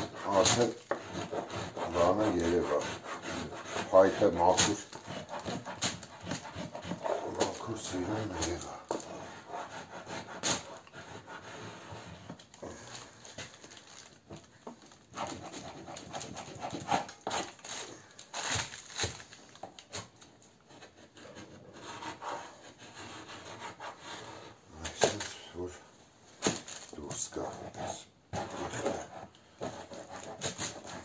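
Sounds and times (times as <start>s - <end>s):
metal scraper rasping wood: 0.0s - 12.7s, 28.4s - 31.0s.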